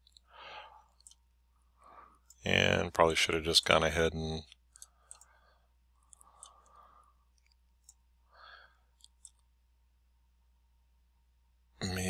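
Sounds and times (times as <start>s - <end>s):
computer mouse clicks: 0.0s - 1.2s, 4.5s - 5.4s, 6.0s - 8.1s, 8.9s - 9.5s
soft breath: 0.2s - 2.4s, 4.8s - 7.3s, 8.2s - 9.1s.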